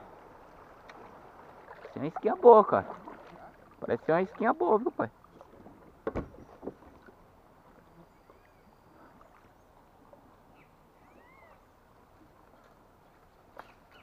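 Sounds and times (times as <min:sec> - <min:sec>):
faint short bird calls: 0:07.9 - 0:09.6, 0:10.5 - 0:11.7.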